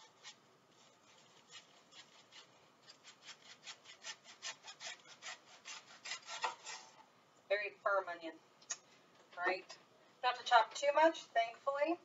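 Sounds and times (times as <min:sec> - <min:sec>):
knife slicing onion on cutting board: 0:00.0 - 0:07.0.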